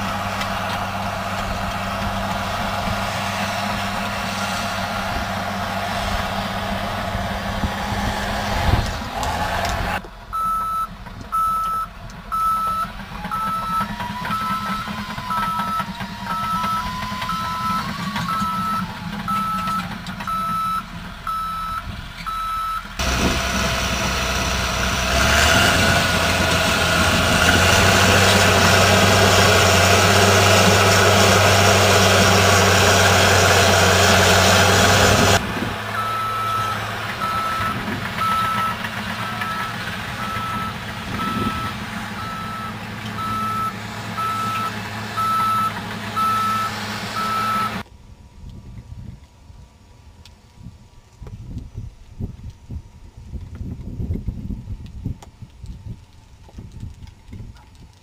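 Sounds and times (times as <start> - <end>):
diesel engine running: 0.0 - 48.4
back-up alarm beeping: 10.3 - 23.0, 36.0 - 47.8.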